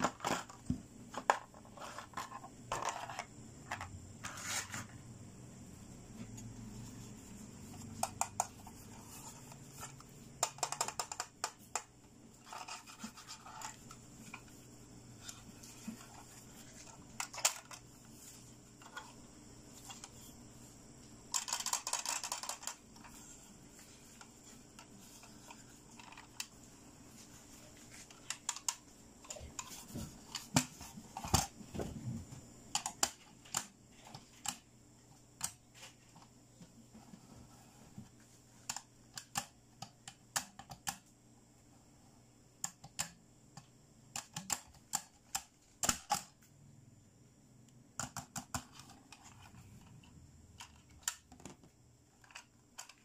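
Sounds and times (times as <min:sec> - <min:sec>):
plastic toy clicks and taps: 0:07.8 - 0:08.6, 0:09.8 - 0:11.9, 0:21.3 - 0:22.8, 0:38.6 - 0:41.0, 0:42.6 - 0:46.4.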